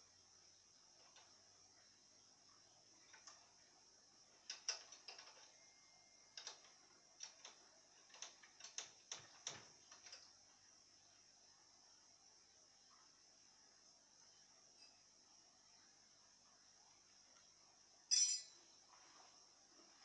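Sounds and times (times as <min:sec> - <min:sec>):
light clicks and taps: 0:06.4 - 0:10.4.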